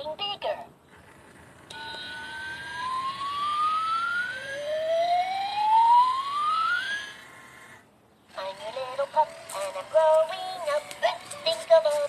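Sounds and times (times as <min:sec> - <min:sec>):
toy rising whistle-like tones: 0:01.7 - 0:07.6.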